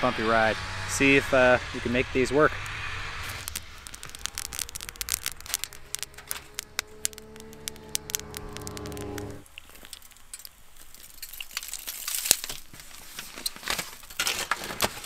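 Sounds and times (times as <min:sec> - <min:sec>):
steady pitched drone: 0:00.0 - 0:09.4
foil crinkling: 0:03.3 - 0:15.0.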